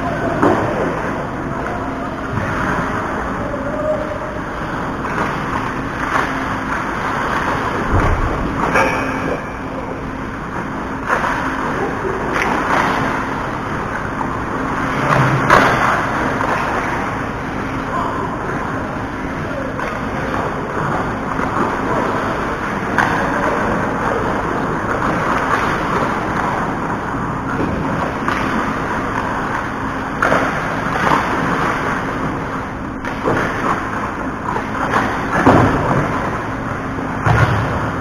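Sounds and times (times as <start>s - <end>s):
arena noise: 0.0s - 38.0s
low steady hum: 0.0s - 38.0s.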